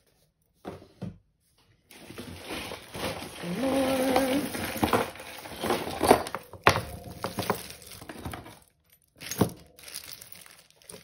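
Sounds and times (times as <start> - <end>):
jewellery clattering and clinking: 2.8 - 11.0.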